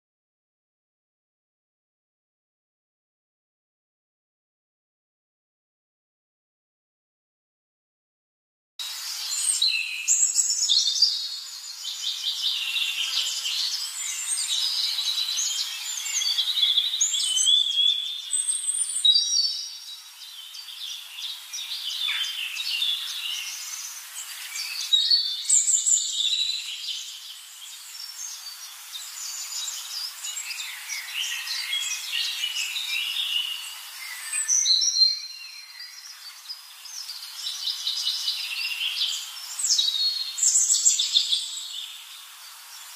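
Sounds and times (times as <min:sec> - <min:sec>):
small birds chirping: 0:08.8 - 0:42.9.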